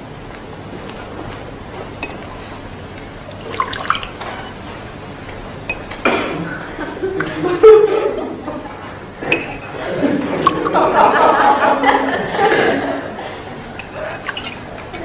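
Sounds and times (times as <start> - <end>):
glasses clinking: 2.0 - 2.3, 5.7 - 6.2, 9.2 - 10.8, 13.8 - 15.0
liquid poured into glasses: 3.4 - 4.4, 13.8 - 14.7
audience laughter: 6.3 - 8.9, 9.7 - 13.7.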